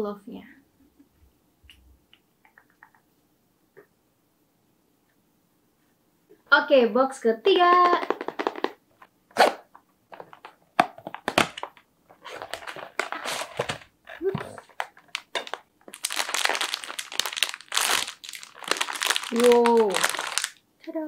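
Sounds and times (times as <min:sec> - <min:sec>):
plastic bag crinkling: 0:07.6 - 0:08.8, 0:10.1 - 0:20.6.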